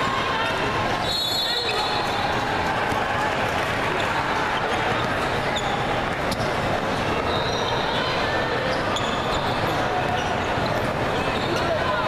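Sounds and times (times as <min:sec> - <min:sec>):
din of busy hall: 0:00.0 - 0:12.0
sneakers squeaking on court: 0:04.6 - 0:11.8.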